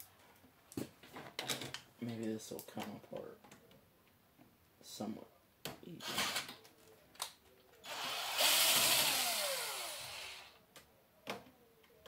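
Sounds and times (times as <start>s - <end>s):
motor whirring and winding down: 7.8s - 10.6s.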